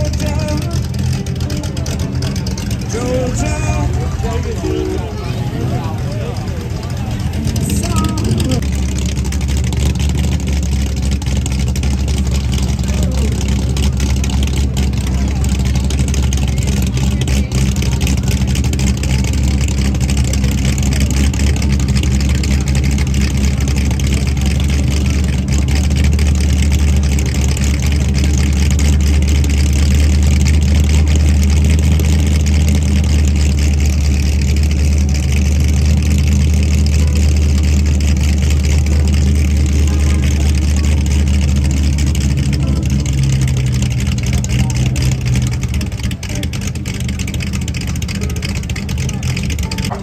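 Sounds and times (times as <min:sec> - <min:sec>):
car engine idling: 0:00.0 - 0:50.0.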